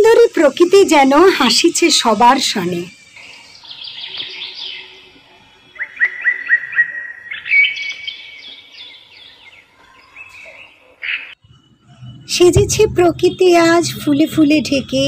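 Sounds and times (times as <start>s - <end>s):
songbirds chirping and singing: 0.5s - 12.3s.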